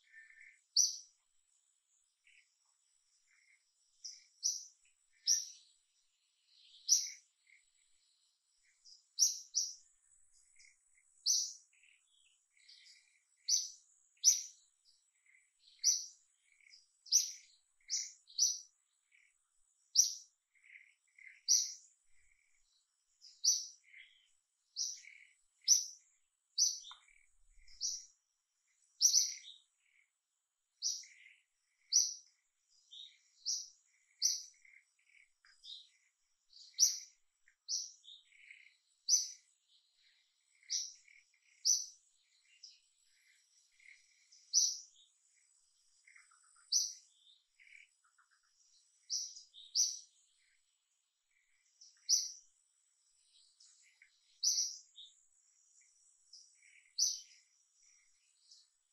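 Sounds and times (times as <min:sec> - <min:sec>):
bird chirping: 0:00.0 - 0:58.9.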